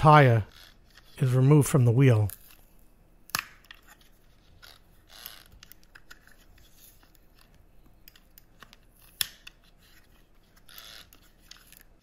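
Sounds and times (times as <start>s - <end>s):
rubber rubbing: 9.0s - 12.0s.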